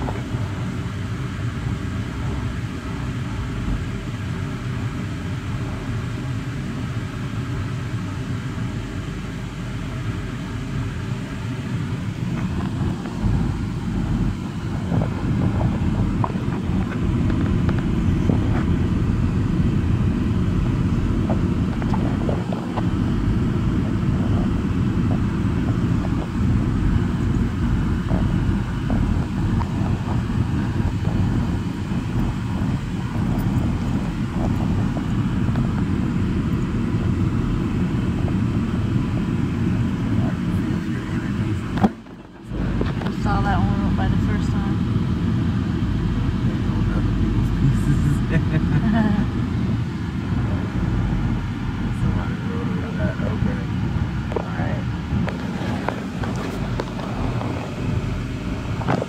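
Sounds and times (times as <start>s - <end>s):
car engine and tyre rumble: 0.0s - 59.0s.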